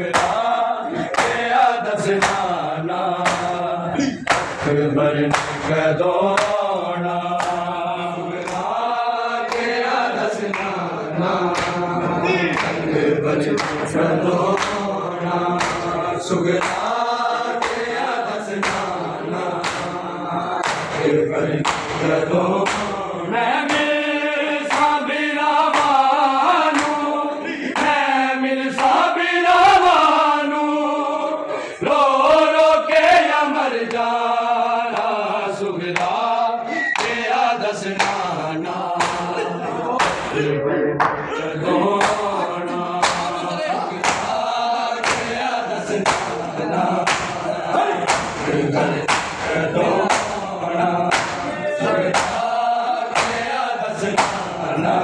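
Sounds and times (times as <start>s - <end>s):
men chanting together: 0.0s - 55.0s
hands slapping chests: 0.1s - 2.6s, 3.2s - 3.6s, 4.2s - 4.7s, 5.3s - 6.8s, 7.4s - 7.7s, 8.4s - 10.9s, 11.5s - 12.9s, 13.5s - 14.9s, 15.6s - 20.0s, 20.6s - 23.0s, 23.7s - 24.0s, 24.7s - 25.0s, 25.7s - 26.1s, 26.7s - 27.1s, 28.8s - 29.0s, 35.9s - 36.2s, 37.0s - 37.2s, 37.9s - 38.3s, 39.0s - 39.4s, 40.0s - 40.4s, 41.9s - 42.4s, 43.0s - 43.4s, 44.0s - 44.4s, 45.0s - 50.5s, 51.1s - 51.5s, 52.1s - 52.5s, 53.1s - 53.5s, 54.1s - 54.5s.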